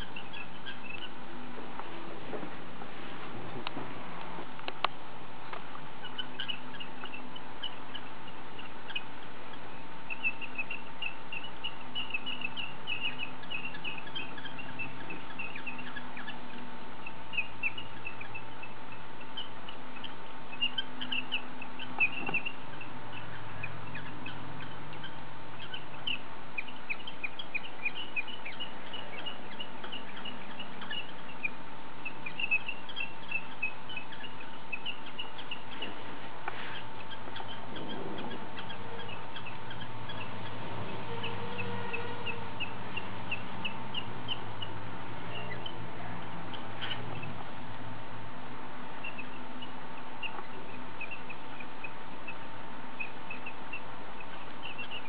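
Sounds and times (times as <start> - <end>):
small birds chirping: 0.0 - 55.0
steady background hum: 0.0 - 55.0.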